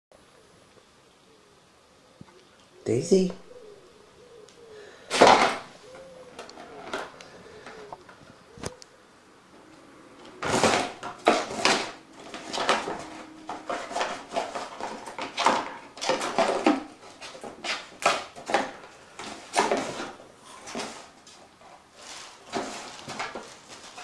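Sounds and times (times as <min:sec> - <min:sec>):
claws scrabbling on cardboard: 0:10.2 - 0:24.0
plastic sheet crinkling: 0:10.4 - 0:24.0.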